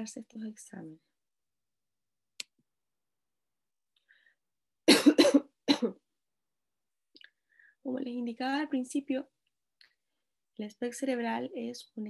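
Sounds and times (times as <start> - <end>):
woman coughing: 4.9 - 6.0.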